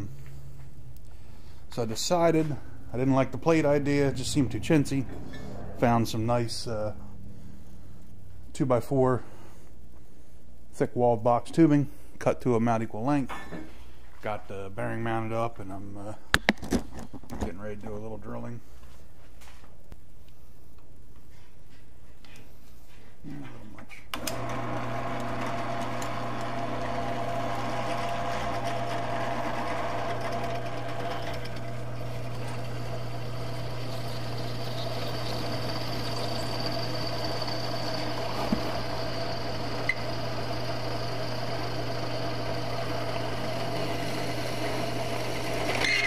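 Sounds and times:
drill motor hum: 24.2 - 46.0.

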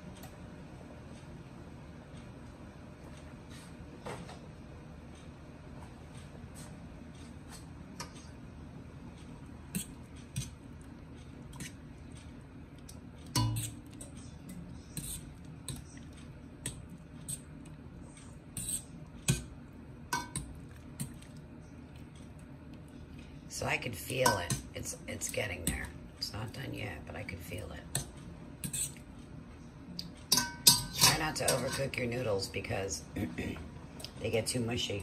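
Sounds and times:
steady low hum: 0.0 - 35.0
metal server scraping pot: 13.3 - 14.2, 14.8 - 15.8, 18.5 - 19.4, 30.3 - 32.4.

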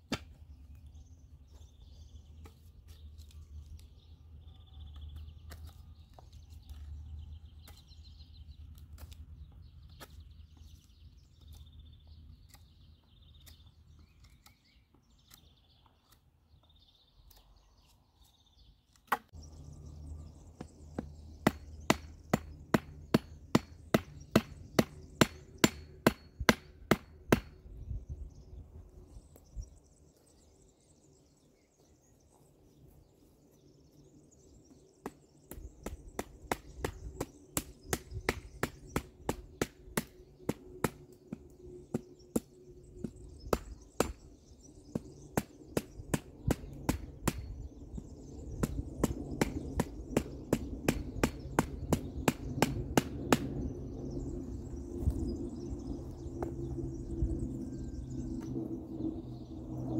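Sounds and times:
axe chopping wood: 0.0 - 0.4, 19.0 - 19.4, 21.0 - 27.6, 48.6 - 53.5.

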